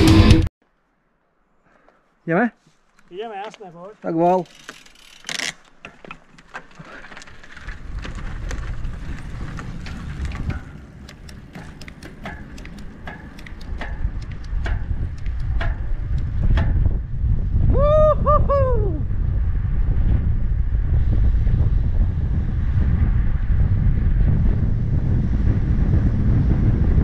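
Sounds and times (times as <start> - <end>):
tyre and wind rumble: 3.1 - 27.0
light clicks and ticks: 9.8 - 16.7
sharp click: 10.5 - 16.8.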